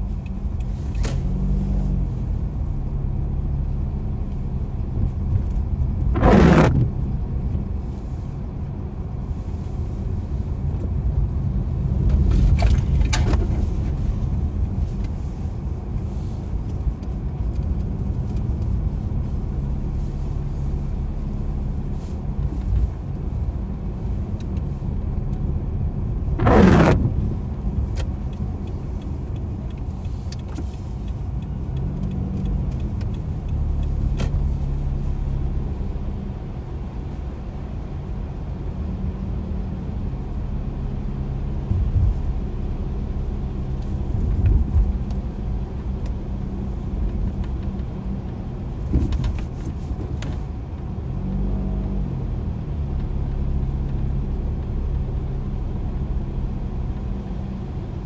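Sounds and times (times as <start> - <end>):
car engine and tyre rumble: 0.0 - 58.0
short loud rush of noise: 6.1 - 7.1, 26.3 - 27.5
faint ticks: 27.9 - 34.7.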